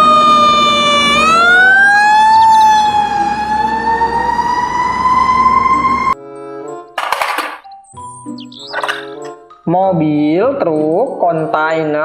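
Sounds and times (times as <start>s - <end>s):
fire truck siren wailing: 0.0s - 6.2s.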